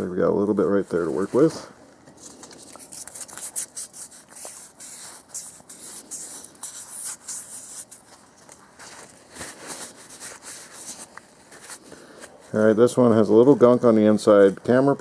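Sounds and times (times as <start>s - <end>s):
sandpaper rubbing on metal: 2.8s - 8.0s.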